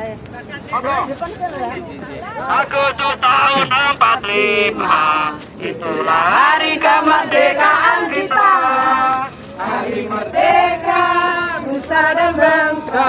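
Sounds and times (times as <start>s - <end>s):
group singing in unison: 3.5s - 13.0s.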